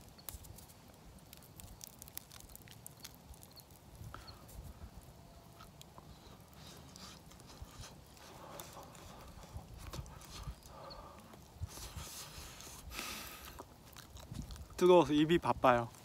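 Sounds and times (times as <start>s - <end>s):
breathy puffs of air: 8.2s - 13.6s
chewing and lip smacking: 13.3s - 14.8s.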